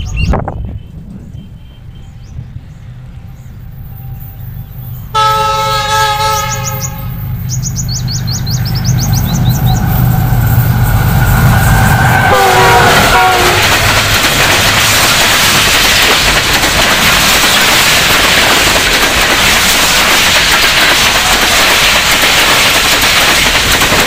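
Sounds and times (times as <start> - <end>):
birds chirping: 0.0 - 5.1, 6.3 - 10.1
locomotive engine rumble: 0.0 - 24.0
train rushing past: 0.0 - 24.0
locomotive air horn: 3.9 - 7.3, 12.2 - 13.8.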